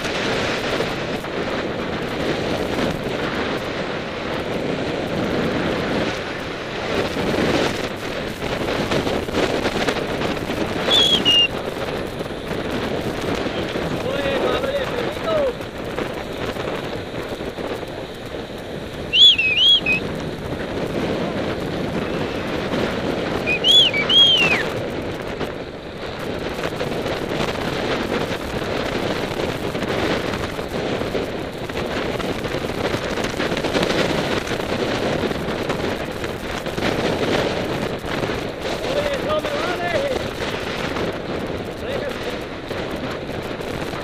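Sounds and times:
bicycle tyre road noise: 0:00.0 - 0:44.0
wind rushing over microphone: 0:00.0 - 0:44.0
high warbling chirps: 0:10.9 - 0:11.5, 0:19.1 - 0:20.0, 0:23.5 - 0:24.6.

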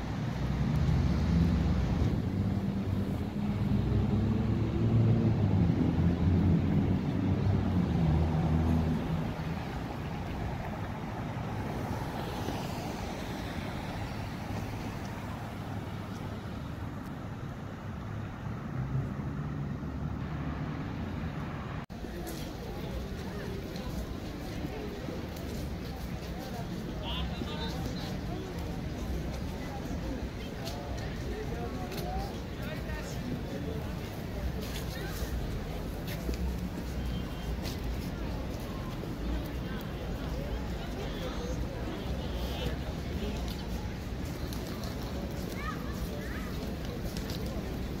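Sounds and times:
car passing with hiss: 0:00.0 - 0:30.9
steady traffic rumble: 0:00.0 - 0:48.0.

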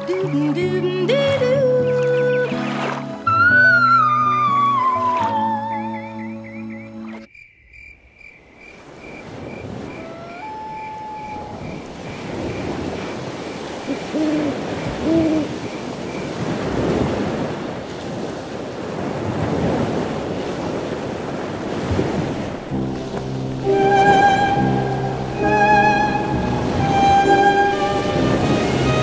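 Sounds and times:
surf-like rushing noise: 0:08.9 - 0:29.0.

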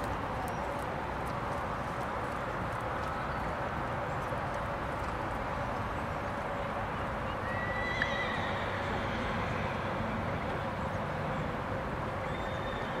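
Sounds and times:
horse whinnying: 0:07.7 - 0:09.4.

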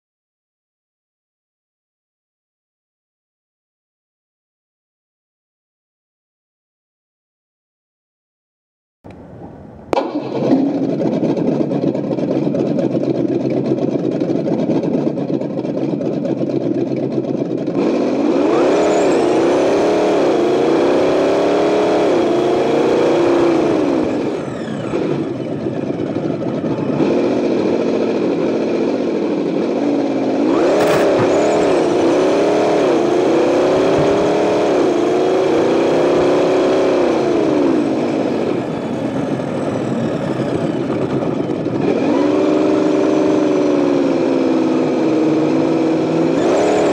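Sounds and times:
simulated engine revving: 0:09.1 - 0:14.8, 0:17.7 - 0:46.9.

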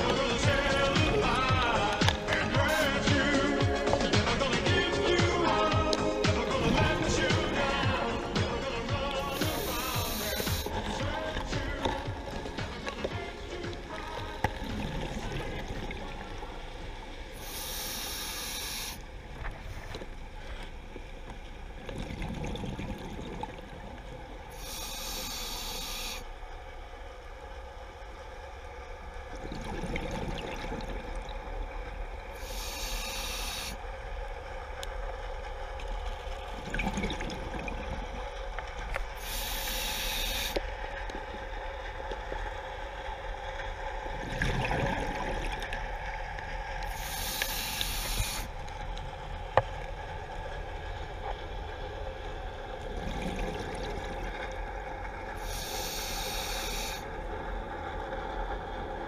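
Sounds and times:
hissing regulator inhalations: 0:00.0 - 0:13.3, 0:17.4 - 0:19.0, 0:24.5 - 0:26.3, 0:32.3 - 0:33.8, 0:39.2 - 0:40.6, 0:46.8 - 0:48.6, 0:55.4 - 0:57.1
steady hum: 0:00.0 - 0:59.0
gurgle of exhaled bubbles: 0:09.0 - 0:20.3, 0:21.8 - 0:24.8, 0:29.3 - 0:34.2, 0:35.4 - 0:40.7, 0:43.8 - 0:51.3, 0:52.4 - 0:57.9.

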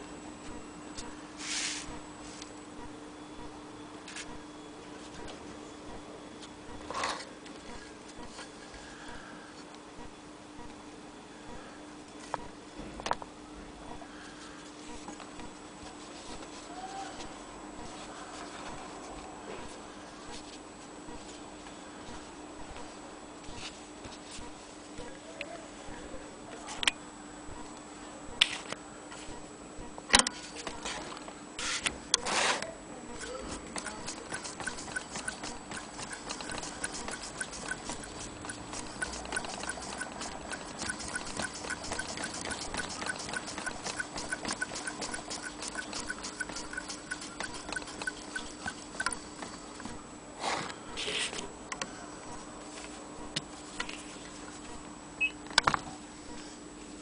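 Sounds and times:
sewing machine ticking: 0:33.2 - 0:49.3.

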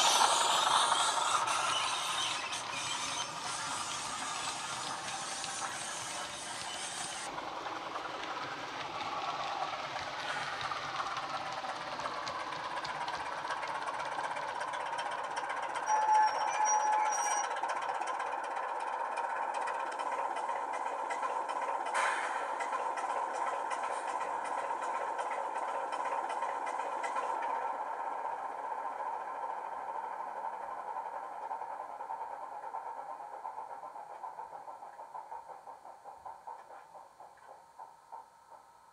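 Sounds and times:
high brake squeal: 0:00.0 - 0:07.3, 0:15.6 - 0:17.8
model diesel engine sound: 0:00.0 - 0:38.8.

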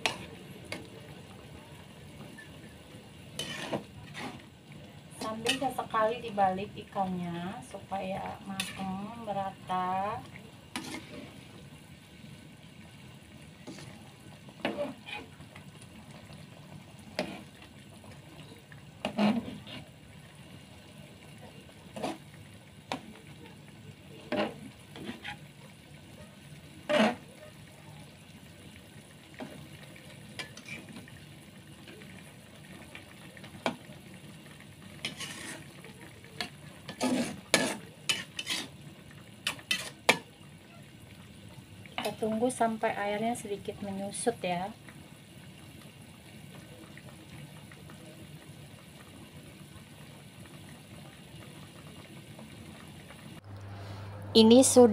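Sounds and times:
broth simmering: 0:00.0 - 0:54.9
metal spatula scraping a wok: 0:03.4 - 0:04.5, 0:05.2 - 0:05.8, 0:08.5 - 0:09.0, 0:10.7 - 0:11.4, 0:14.6 - 0:15.4, 0:17.2 - 0:17.6, 0:19.0 - 0:19.9, 0:21.9 - 0:22.3, 0:24.3 - 0:25.4, 0:26.8 - 0:27.2, 0:30.4 - 0:30.9, 0:35.0 - 0:35.7, 0:36.9 - 0:38.8, 0:39.4 - 0:40.2.

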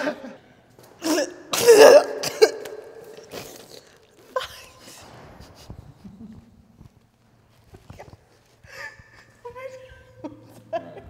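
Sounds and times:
person coughing: 0:01.0 - 0:04.8.

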